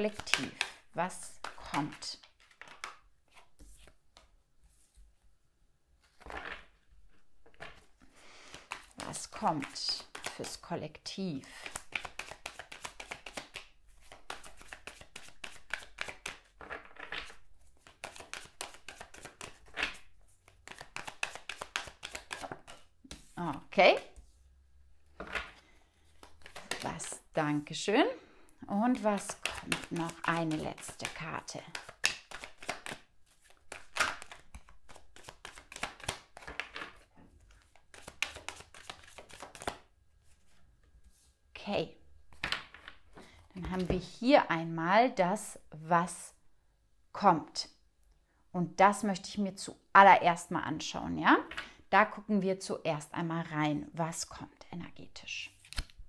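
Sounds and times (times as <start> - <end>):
cards being shuffled: 0.0 - 4.3, 6.0 - 6.8, 7.4 - 10.7, 11.4 - 24.4, 25.2 - 27.3, 28.9 - 40.6, 55.5 - 56.0.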